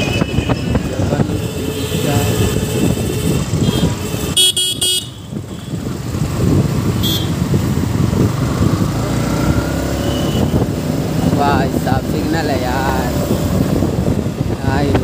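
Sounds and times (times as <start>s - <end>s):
motorcycle engine rumble: 0.0s - 15.0s
horn beeps: 1.5s - 5.8s, 7.0s - 7.4s, 10.0s - 10.6s.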